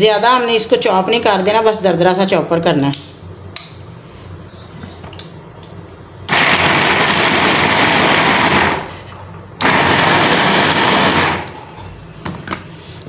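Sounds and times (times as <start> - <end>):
electric food chopper whirring: 6.3 - 8.9, 9.6 - 11.6.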